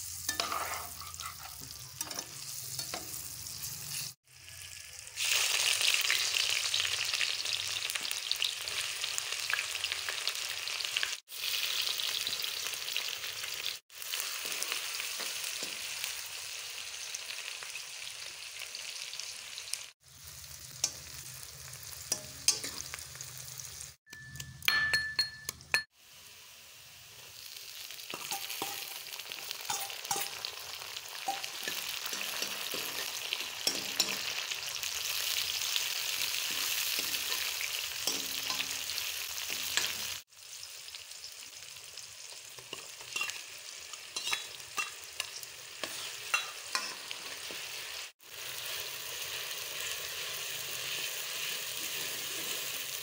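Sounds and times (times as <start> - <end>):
onions sizzling in oil: 0.0 - 24.0, 25.9 - 53.0
metal ladle clinking on pan: 24.1 - 25.9, 28.1 - 29.0, 29.7 - 30.5, 45.8 - 47.0.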